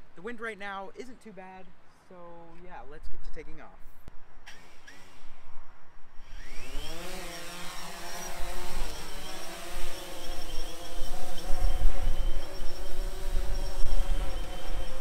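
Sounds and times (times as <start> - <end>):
drone motors whining and buzzing: 4.5 - 5.4, 6.2 - 15.0
wind rumble on microphone: 11.0 - 15.0.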